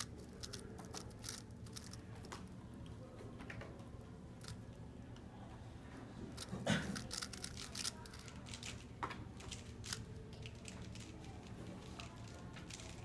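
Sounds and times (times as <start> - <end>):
puzzle cube plastic clicks: 0.0 - 2.0, 6.4 - 8.8.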